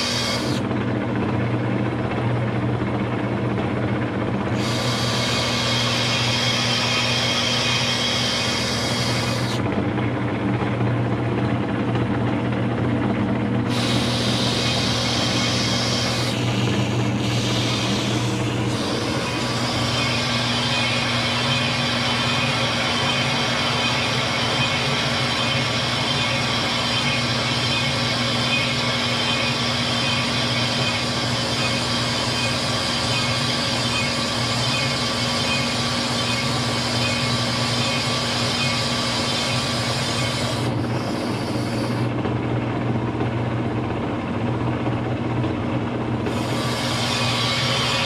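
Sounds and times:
metal lathe hum and hiss: 0.0s - 0.8s, 4.5s - 9.6s, 13.6s - 42.2s, 46.2s - 48.0s.

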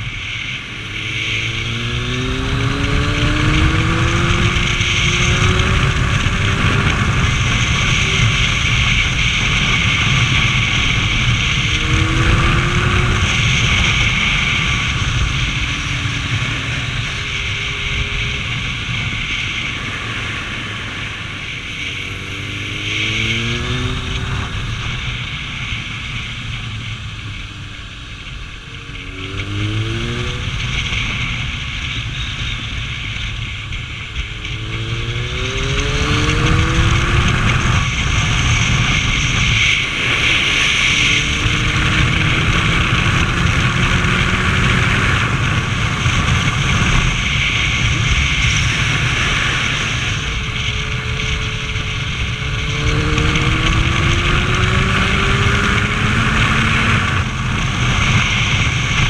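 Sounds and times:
motorcycle engine revving: 0.0s - 59.0s
wind noise on microphone: 0.0s - 59.0s.

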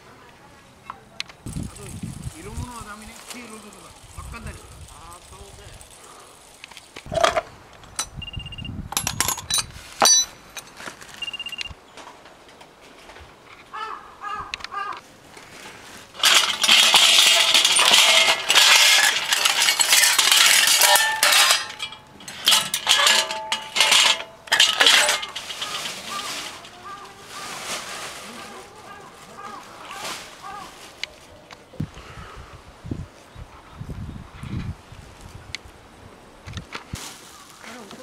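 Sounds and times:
rattling clatter of scrap metal: 16.1s - 28.4s.

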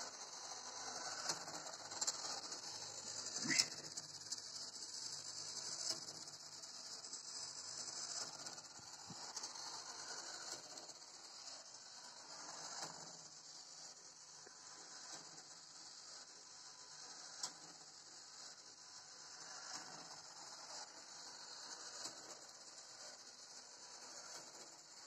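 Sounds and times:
high-pitched hiss: 3.4s - 3.8s.

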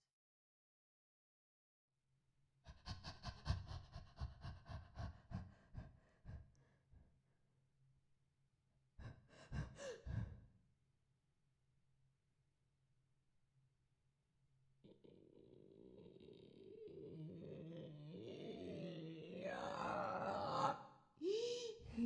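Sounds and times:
woman's rapid breathy gasps: 9.0s - 10.5s.

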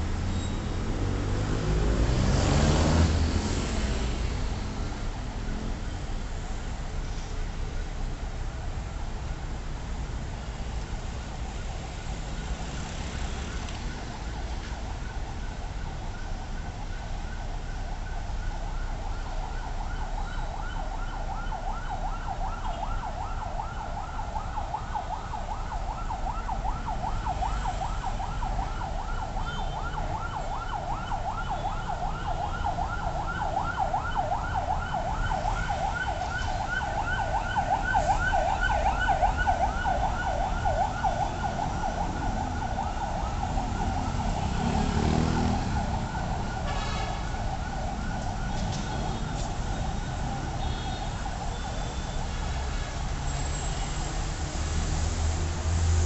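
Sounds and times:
low rumble of street traffic: 0.0s - 56.0s
emergency siren yelping: 11.2s - 52.7s.

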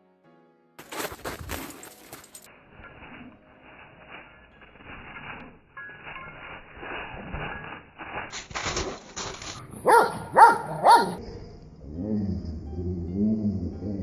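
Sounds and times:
faint scuffling: 0.8s - 2.5s
dog barking: 9.8s - 11.2s.

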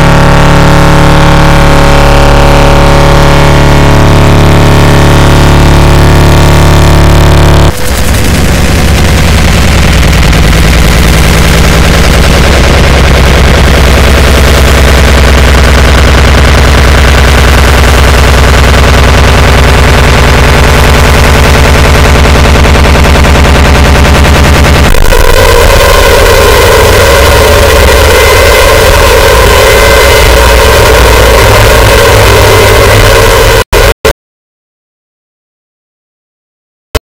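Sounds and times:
distorted rapid rattle: 0.0s - 34.2s
heavy bass drone: 0.0s - 34.2s.

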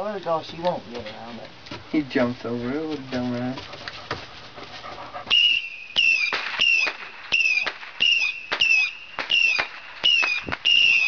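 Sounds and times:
firework whistling shots: 5.3s - 11.0s.

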